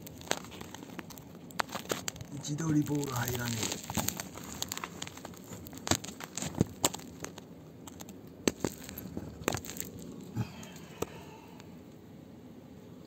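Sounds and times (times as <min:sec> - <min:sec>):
grit crackling: 0:00.0 - 0:11.8.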